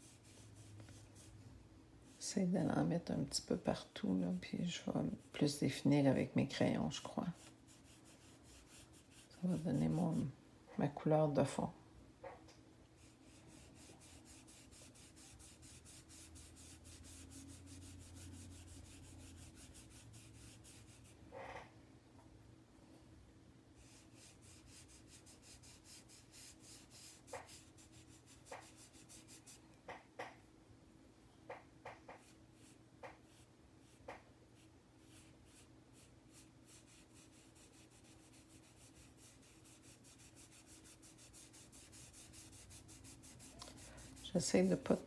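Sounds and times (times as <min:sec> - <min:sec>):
sponge rubbing on paper: 0:00.0 - 0:01.4, 0:06.9 - 0:10.3, 0:13.0 - 0:21.2, 0:23.8 - 0:29.6, 0:32.1 - 0:45.0.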